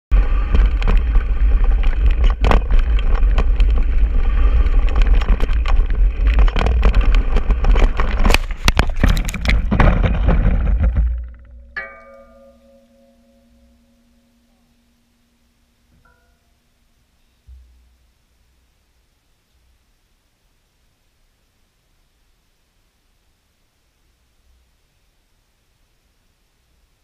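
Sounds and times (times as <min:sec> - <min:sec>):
ringing metallic tone: 0:11.6 - 0:17.9.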